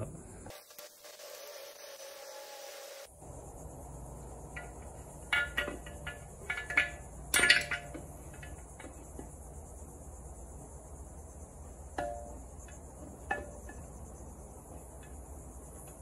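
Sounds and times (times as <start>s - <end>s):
steady high hiss: 0.0s - 16.0s
light metal clinks and knocks: 4.4s - 9.4s.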